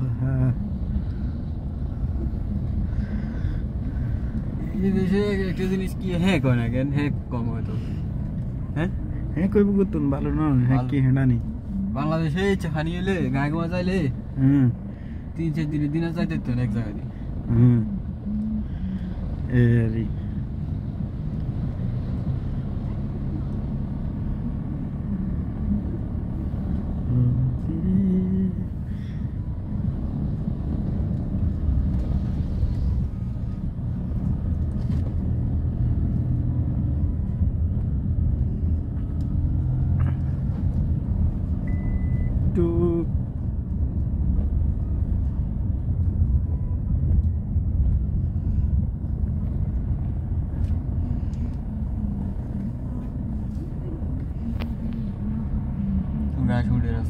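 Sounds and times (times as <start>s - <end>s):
tyres on rough dirt road: 0.0s - 57.0s
van engine rumble: 0.0s - 57.0s
short high beep: 41.6s - 42.4s.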